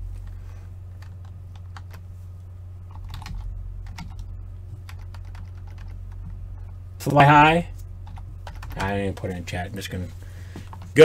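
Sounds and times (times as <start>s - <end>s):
steady low hum: 0.0s - 11.0s
keyboard typing: 1.0s - 2.0s, 2.9s - 6.3s, 8.0s - 9.4s.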